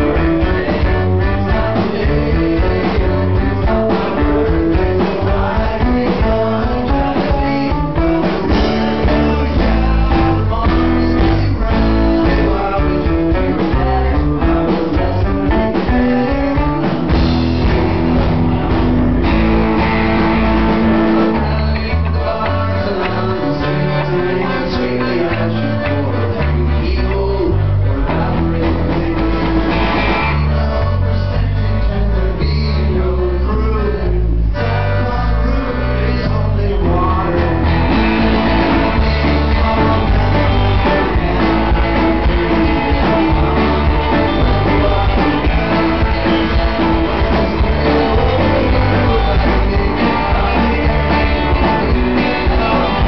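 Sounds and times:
accordion: 0:00.0 - 0:53.0
live rock band playing: 0:00.0 - 0:53.0
man singing lead: 0:00.0 - 0:53.0.

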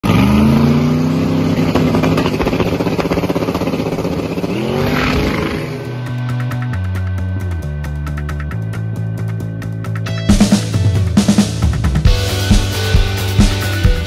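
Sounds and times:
car engine revving hard: 0:00.0 - 0:06.2
music: 0:05.3 - 0:14.0.

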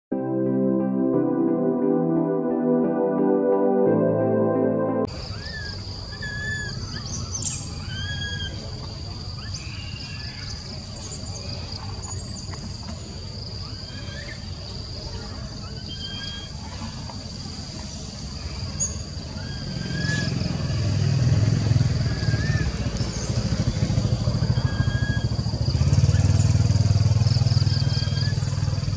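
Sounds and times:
high-pitched drone: 0:00.1 - 0:05.2
birds chirping: 0:05.1 - 0:20.8, 0:22.0 - 0:28.9.

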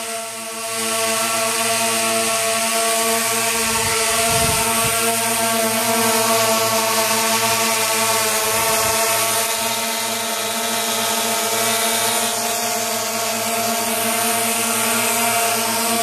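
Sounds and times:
drone propellers buzzing: 0:00.0 - 0:16.0.

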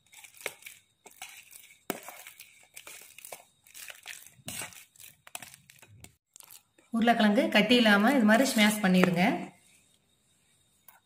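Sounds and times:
potatoes squishing under masher: 0:00.0 - 0:06.7.

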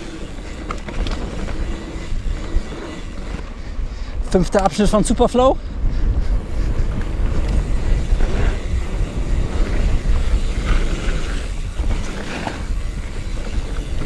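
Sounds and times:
bike clattering over bumps: 0:00.0 - 0:03.6, 0:06.3 - 0:14.0
bike tyres rolling on dirt: 0:00.0 - 0:14.0
wind buffeting microphone: 0:00.0 - 0:14.0.

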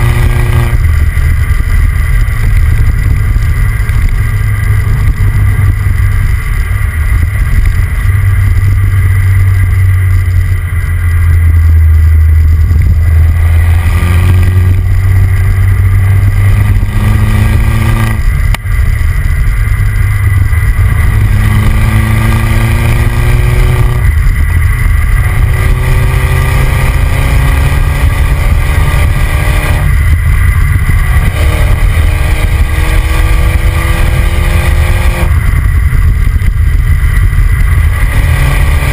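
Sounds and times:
car engine accelerating: 0:00.0 - 0:38.9
road rumble: 0:00.0 - 0:38.9
wind noise: 0:00.0 - 0:38.9.

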